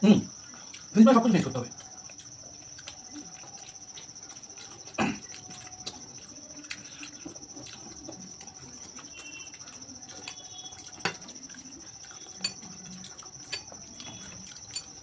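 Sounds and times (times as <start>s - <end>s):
spoons clinking on plates: 10.2s - 11.4s, 12.1s - 15.0s.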